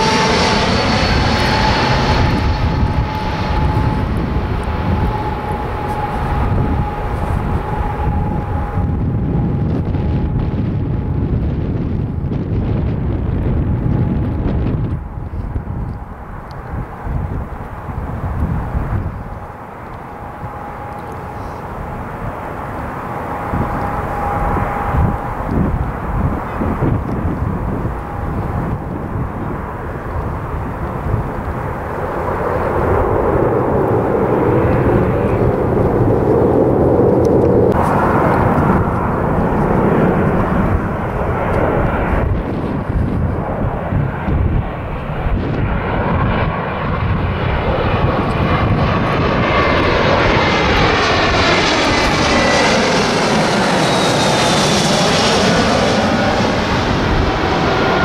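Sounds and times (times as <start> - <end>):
jet passing low overhead: 0.0 - 58.0
turboprop engine and propeller noise: 0.0 - 58.0.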